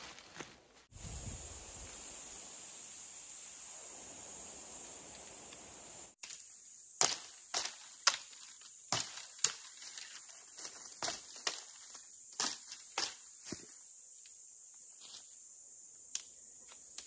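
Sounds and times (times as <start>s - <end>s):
steady hiss: 0.6s - 8.9s.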